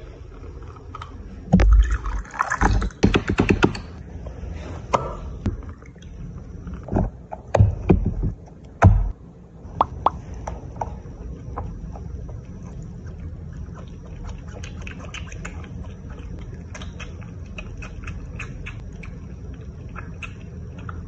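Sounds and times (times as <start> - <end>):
liquid sloshing: 1.5 - 3.0.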